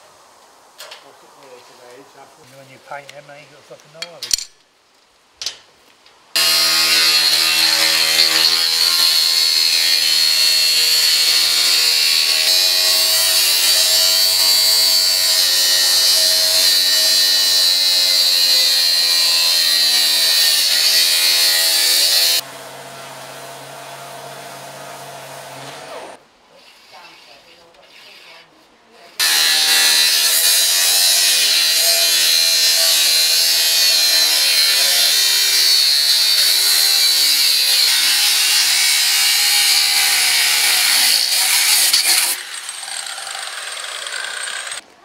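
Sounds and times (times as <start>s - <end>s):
angle grinder cutting sheet steel: 6.4s - 26.2s, 29.2s - 44.8s.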